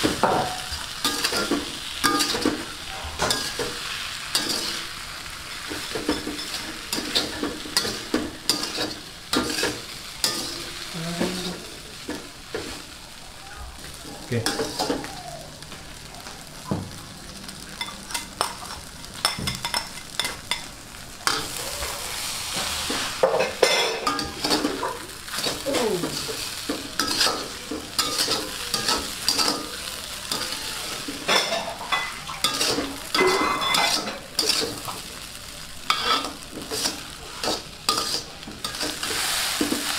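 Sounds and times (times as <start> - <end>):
food sizzling in a pan: 0.0 - 39.9
metal spatula scraping a pan: 0.5 - 12.8, 21.2 - 35.0, 35.9 - 39.9.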